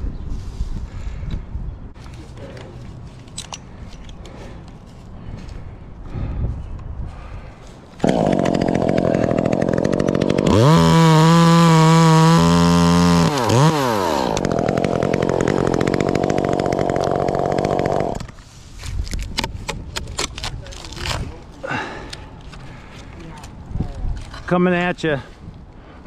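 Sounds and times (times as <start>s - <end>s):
chainsaw cutting wood: 8.0s - 18.4s.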